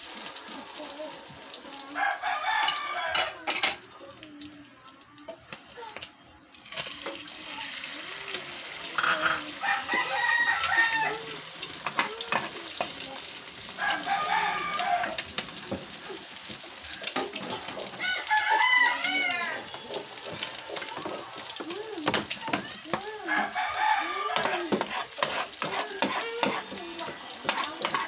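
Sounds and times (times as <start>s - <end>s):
food frying in a pan: 0.0s - 28.0s
rooster crowing: 1.9s - 3.4s, 9.6s - 11.4s, 13.7s - 15.2s, 17.8s - 19.7s, 23.2s - 24.8s.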